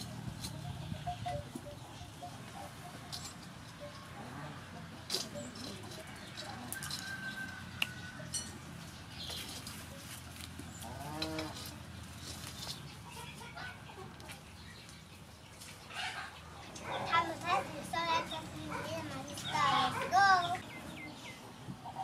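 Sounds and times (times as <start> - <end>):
farm animal calling: 0.1 - 8.2, 10.7 - 12.3, 15.8 - 22.0.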